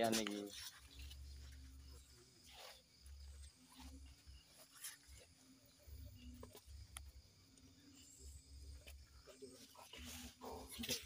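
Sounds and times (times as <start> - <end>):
faint ticks: 6.0 - 7.7.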